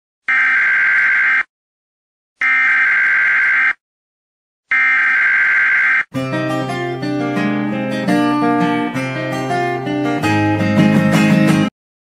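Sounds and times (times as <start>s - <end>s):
electronic warning buzzer: 0.3s - 1.5s, 2.4s - 3.8s, 4.7s - 6.1s.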